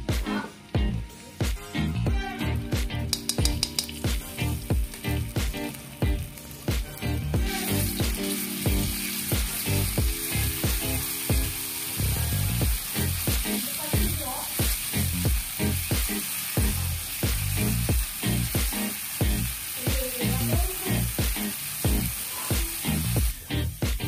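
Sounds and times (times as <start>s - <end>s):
background music with steady beat: 0.0s - 24.0s
paste sizzling in hot oil: 3.0s - 24.0s.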